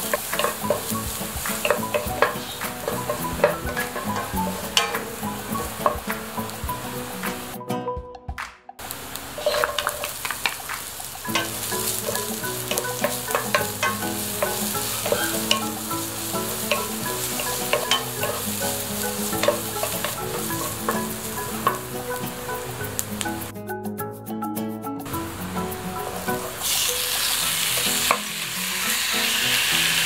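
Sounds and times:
spatula scraping and clicking on pan: 0.0s - 6.2s, 9.4s - 21.9s
onions sizzling in a pan: 0.0s - 7.5s, 8.8s - 23.5s, 25.1s - 30.0s.

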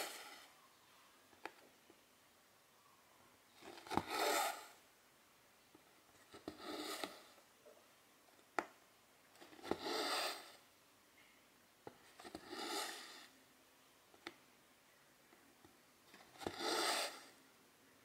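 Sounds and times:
thread drawn through rasp: 0.0s - 0.6s, 3.6s - 4.8s, 6.3s - 7.4s, 9.4s - 10.6s, 12.2s - 13.3s, 16.1s - 17.4s.

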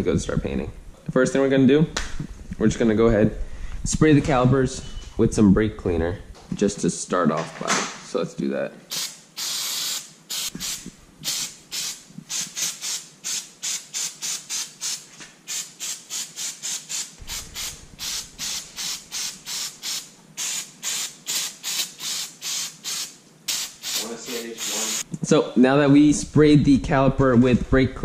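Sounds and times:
aerosol can spraying: 8.9s - 25.1s.

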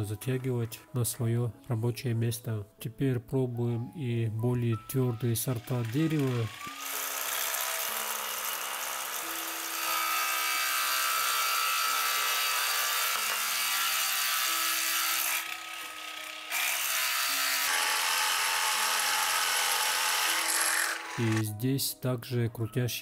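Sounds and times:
drill bit shaving wood: 5.0s - 21.4s.

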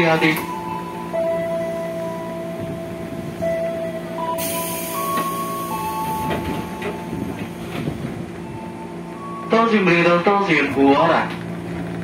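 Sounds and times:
hiss of released air: 4.4s - 5.9s.

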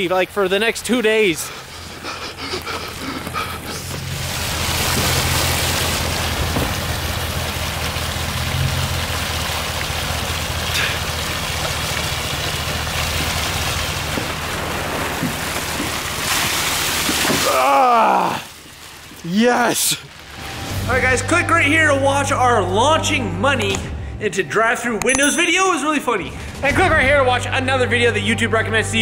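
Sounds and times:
water pouring and splashing on ground: 0.0s - 22.5s.

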